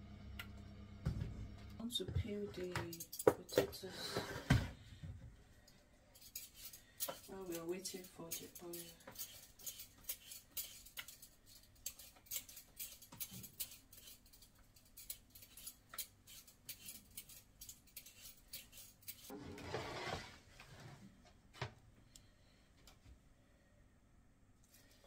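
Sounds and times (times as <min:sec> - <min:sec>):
blade scraping potato skin: 0:06.2 - 0:20.1.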